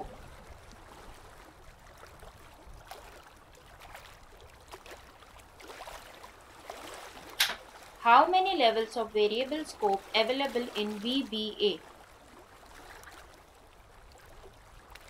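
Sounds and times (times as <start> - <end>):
sharp click: 7.4 - 7.6.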